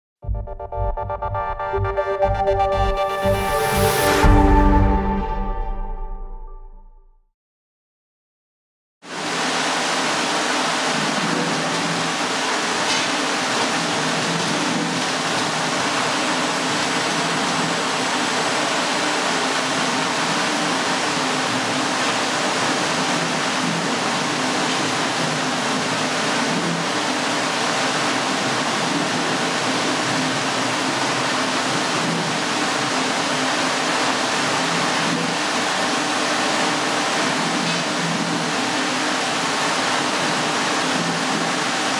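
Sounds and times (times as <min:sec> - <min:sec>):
machine rushing with low hum: 0:00.2 - 0:06.9.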